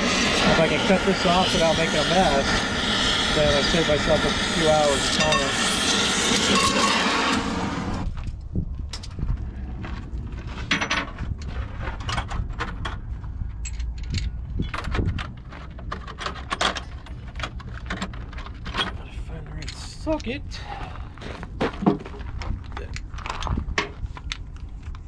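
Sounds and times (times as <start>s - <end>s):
cutting torch flame hissing: 0.0s - 8.2s
low rumble: 0.0s - 16.2s
metal tools clinking: 13.6s - 14.8s.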